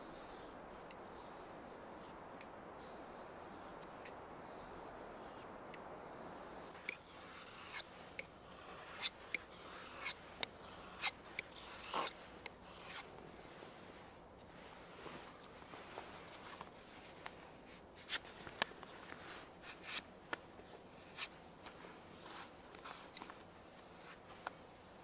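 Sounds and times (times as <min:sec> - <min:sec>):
soft steady hiss: 0:00.0 - 0:25.0
knife scraping wood: 0:06.8 - 0:13.1.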